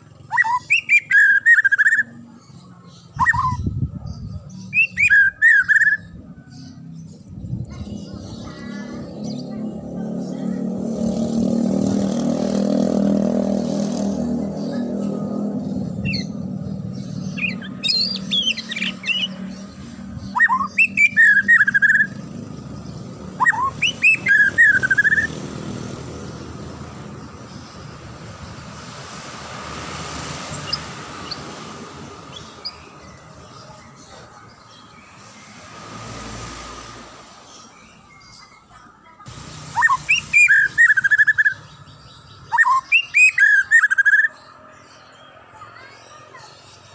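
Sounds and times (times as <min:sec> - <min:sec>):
low traffic rumble: 0:00.0 - 0:46.9
bird singing rising whistles: 0:23.4 - 0:25.3, 0:39.7 - 0:41.7, 0:42.5 - 0:44.3.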